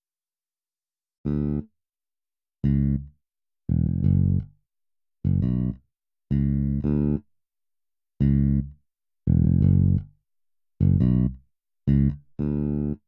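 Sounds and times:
electric bass guitar phrases: 0:01.2 - 0:01.7, 0:02.6 - 0:04.6, 0:05.2 - 0:07.3, 0:08.2 - 0:10.2, 0:10.8 - 0:13.0.

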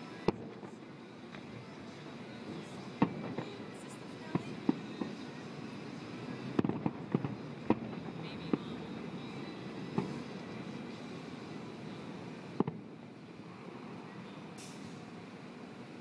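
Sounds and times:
fireworks bangs: 0:02.5 - 0:13.0.

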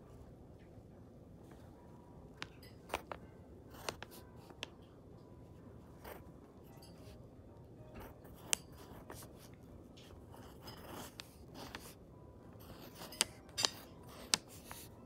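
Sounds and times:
pencil scratching on paper: 0:08.0 - 0:12.0, 0:12.6 - 0:15.0
pencil ticks: 0:08.3 - 0:09.2, 0:12.6 - 0:14.9.

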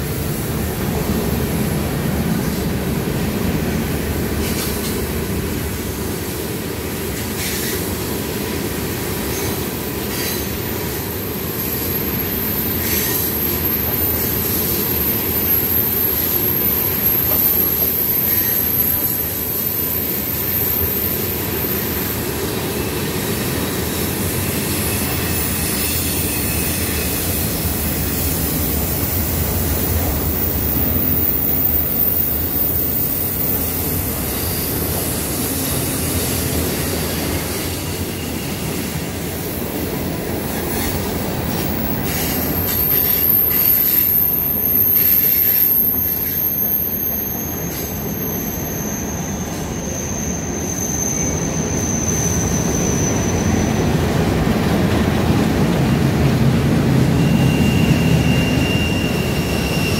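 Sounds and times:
freight train rumbling on rails: 0:00.0 - 0:59.9
high wheel squeal: 0:09.0 - 0:54.0, 0:57.0 - 0:59.9.

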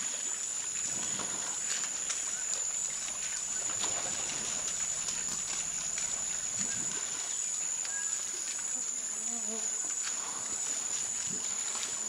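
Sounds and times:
insect chorus drone: 0:00.0 - 0:12.0.

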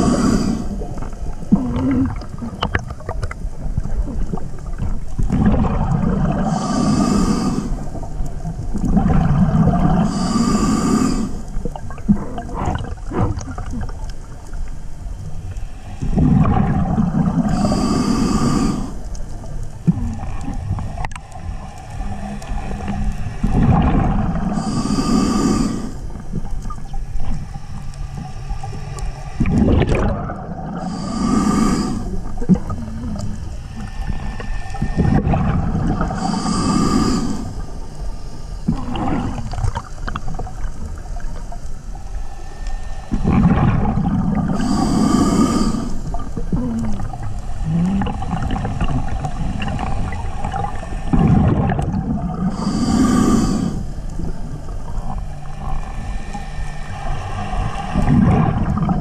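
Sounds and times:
hissing regulator inhalations: 0:00.0 - 0:01.2, 0:06.2 - 0:08.1, 0:09.6 - 0:13.5, 0:15.4 - 0:19.4, 0:21.0 - 0:26.3, 0:30.6 - 0:40.3, 0:41.8 - 0:59.0
bubbling exhalations: 0:00.0 - 0:07.9, 0:08.5 - 0:14.4, 0:16.0 - 0:19.0, 0:22.7 - 0:26.9, 0:29.4 - 0:37.6, 0:38.7 - 0:41.3, 0:43.1 - 0:56.4, 0:57.6 - 0:59.0.

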